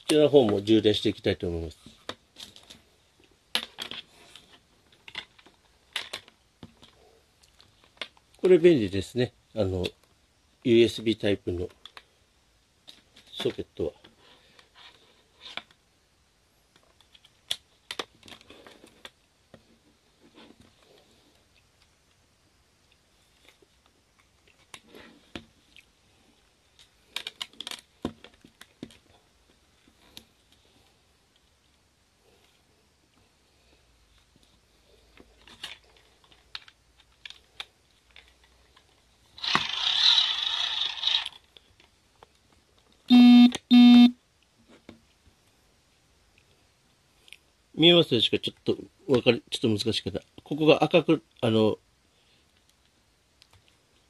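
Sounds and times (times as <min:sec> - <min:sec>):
buzzing electronic beeps: 0:43.1 - 0:44.2.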